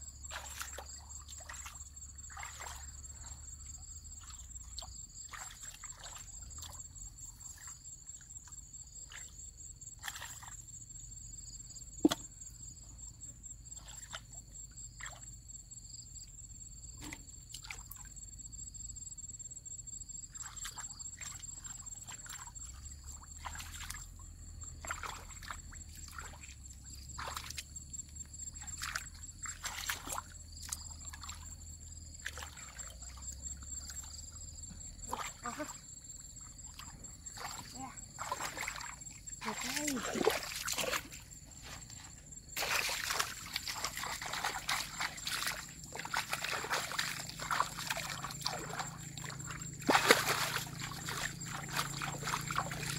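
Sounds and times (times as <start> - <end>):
hands splashing in muddy water: 0.2 - 3.4, 4.2 - 6.8, 10.0 - 10.6, 20.3 - 24.1, 24.8 - 27.7, 28.5 - 34.2, 36.6 - 52.9.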